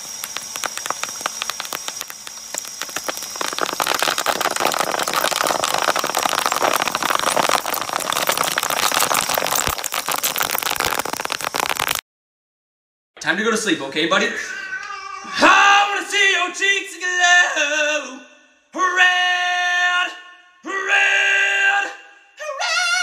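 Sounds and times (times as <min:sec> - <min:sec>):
bubble wrap popping in shredder: 0:00.0 - 0:12.0.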